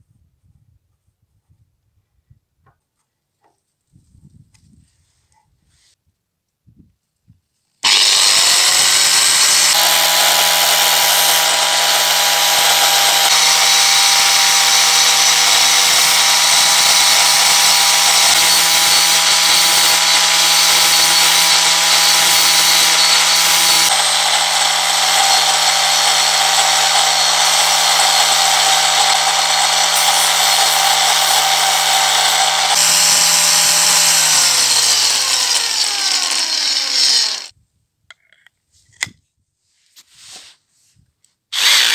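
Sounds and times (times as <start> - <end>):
angle grinder running: 7.8 - 37.5, 41.6 - 41.9
wood sanded on spinning disc: 7.8 - 37.5.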